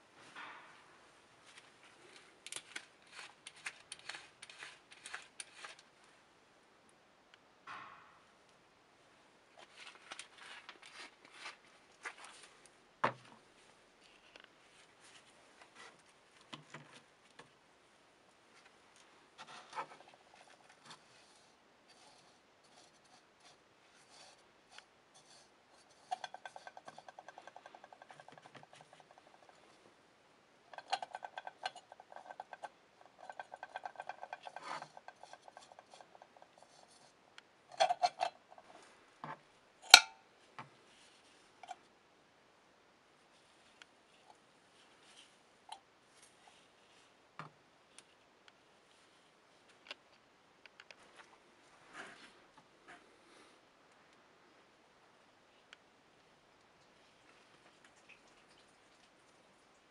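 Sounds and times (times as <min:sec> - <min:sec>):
paintbrush scrubbing metal: 0:02.6 - 0:05.8, 0:19.5 - 0:29.6, 0:30.7 - 0:38.8.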